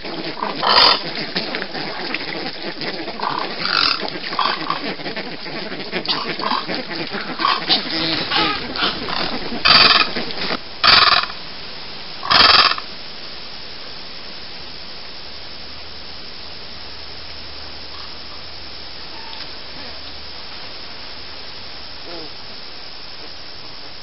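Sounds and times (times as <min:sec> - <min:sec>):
flock of ibis calling: 0:00.0 - 0:11.4, 0:12.2 - 0:12.9, 0:17.9 - 0:18.4
harsh bird calls: 0:00.0 - 0:11.4, 0:12.2 - 0:12.9
steady hiss: 0:00.0 - 0:24.0.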